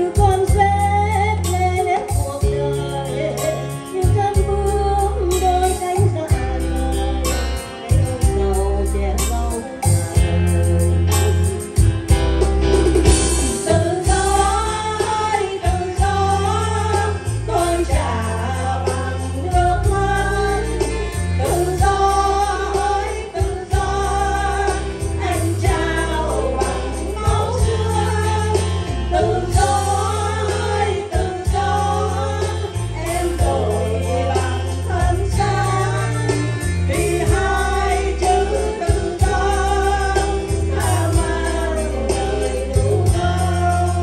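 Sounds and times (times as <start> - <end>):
women singing into microphones: 0.0 - 11.9, 13.5 - 44.0
electronic keyboard accompaniment: 0.0 - 44.0
steady bass line: 0.0 - 44.0.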